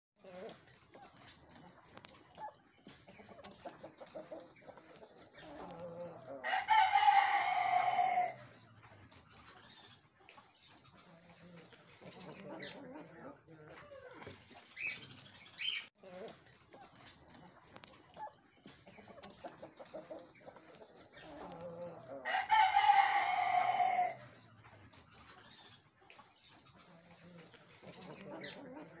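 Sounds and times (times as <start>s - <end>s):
chicken clucking: 0.2s - 29.0s
rooster crowing: 6.4s - 8.4s, 22.2s - 24.2s.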